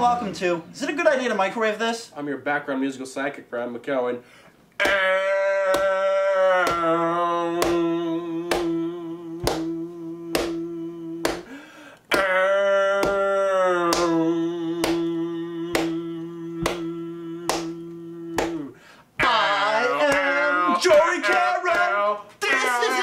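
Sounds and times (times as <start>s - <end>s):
a cappella singing: 4.8s - 23.0s.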